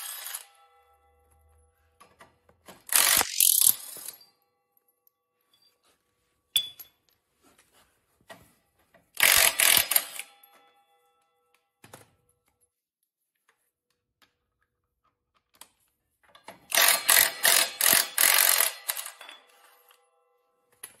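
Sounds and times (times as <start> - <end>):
sharp click: 3.0 - 4.0.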